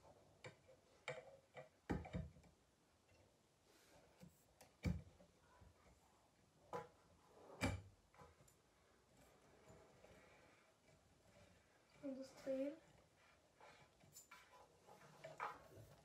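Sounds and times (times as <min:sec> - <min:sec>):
lamp parts clicking and knocking: 0:00.4 - 0:02.6.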